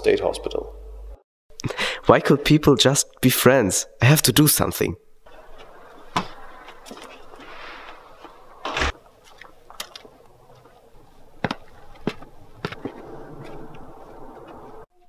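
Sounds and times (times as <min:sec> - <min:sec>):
background noise: 0:00.0 - 0:15.0
footsteps on concrete steps: 0:05.5 - 0:14.8.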